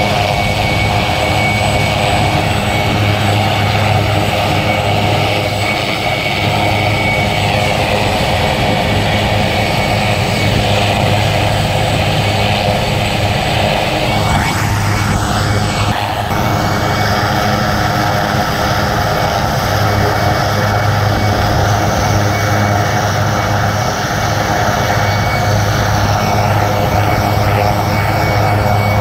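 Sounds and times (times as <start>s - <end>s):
helicopter turbine whine: 0.0s - 29.0s
rotor and engine hum: 0.0s - 29.0s.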